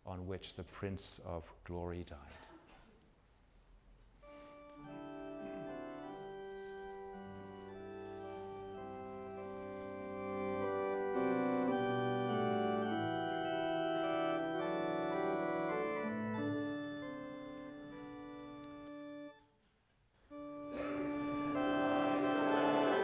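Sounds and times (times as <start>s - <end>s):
organ playing hymn chords: 4.2s - 19.5s, 20.3s - 23.0s.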